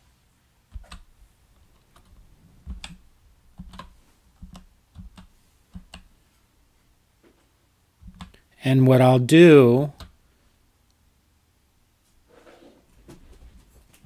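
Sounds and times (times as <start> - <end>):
keyboard keystrokes: 1.7 - 3.0, 3.6 - 6.1.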